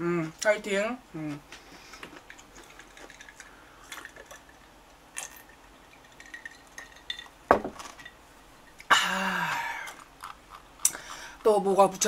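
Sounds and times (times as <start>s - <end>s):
glass mug clinking: 5.2s - 8.8s
mug knocking on table: 7.5s - 7.8s.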